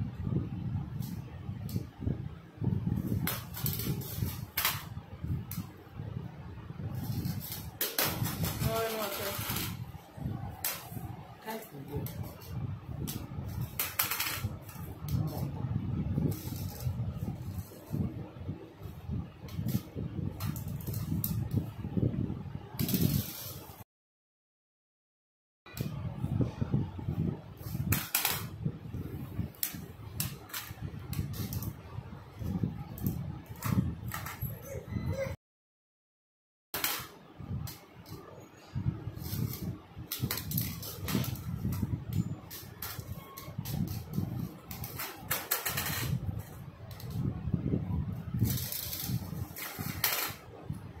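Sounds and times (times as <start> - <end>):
metal sieve spinning on tile: 6.9 - 9.9
steel tin rolling on tiled floor: 7.0 - 9.8, 43.8 - 46.2, 48.4 - 50.4.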